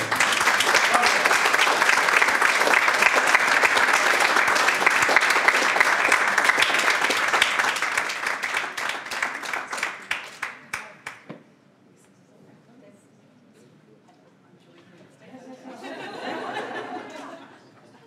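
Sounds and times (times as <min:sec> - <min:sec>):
audience applauding: 0:00.0 - 0:11.3.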